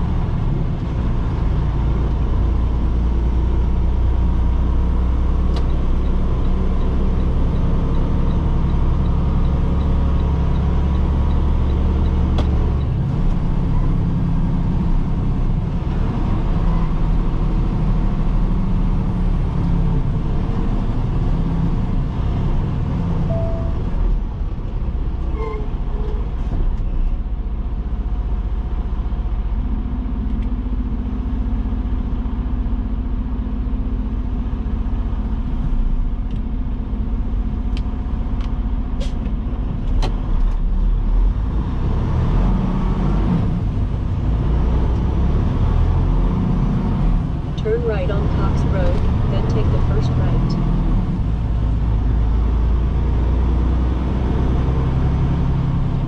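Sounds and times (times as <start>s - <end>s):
road noise: 0.0s - 56.0s
truck diesel engine drone: 0.0s - 56.0s.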